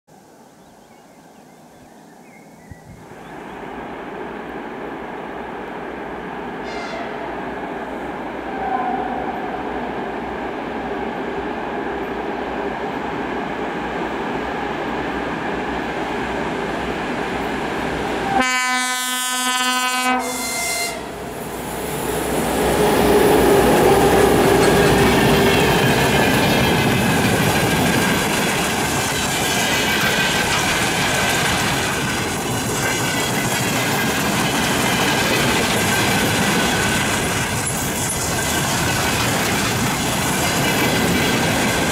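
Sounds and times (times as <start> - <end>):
diesel locomotives droning: 3.2 - 12.2, 13.8 - 41.9
locomotive horn: 6.6 - 7.4, 8.5 - 9.6, 18.2 - 21.3
freight wagons rumbling and clattering: 25.2 - 41.9.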